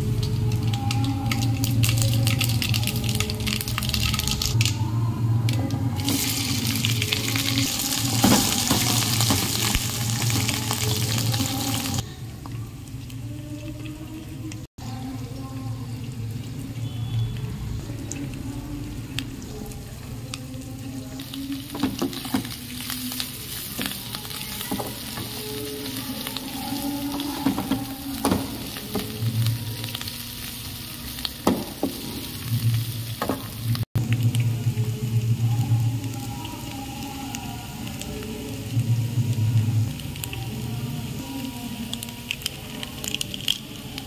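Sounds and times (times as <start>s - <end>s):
potatoes sizzling in hot oil: 6.0s - 12.1s, 12.7s - 44.0s.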